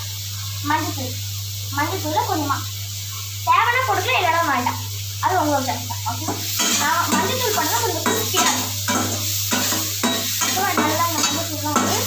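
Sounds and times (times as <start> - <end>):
onions sizzling in oil: 0.0 - 12.0
spatula scraping a pan: 6.2 - 12.0
person talking: 10.5 - 12.0.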